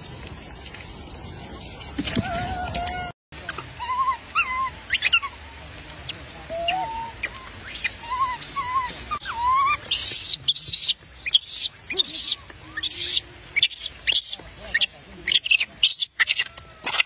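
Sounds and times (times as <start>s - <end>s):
baby macaques crying: 3.8s - 5.3s, 6.5s - 17.0s.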